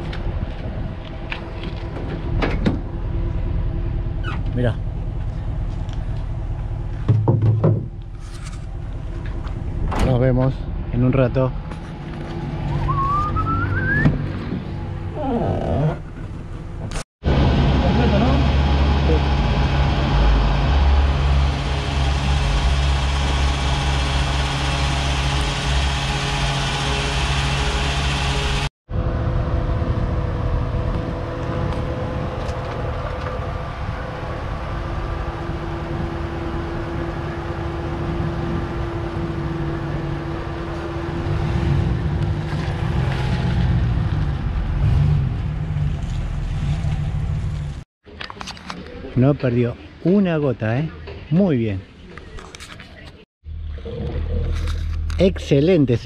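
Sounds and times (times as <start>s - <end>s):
pickup truck engine running: 17.3s - 28.7s.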